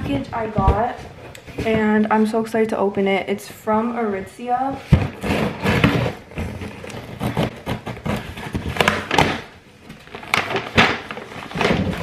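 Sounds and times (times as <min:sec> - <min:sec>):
paper packaging rustling: 0:05.0 - 0:12.0.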